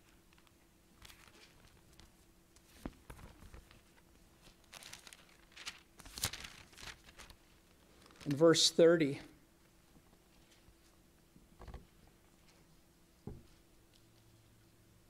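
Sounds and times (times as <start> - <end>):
faint room hum: 0.0 - 15.0
thin pages turning: 0.3 - 8.4.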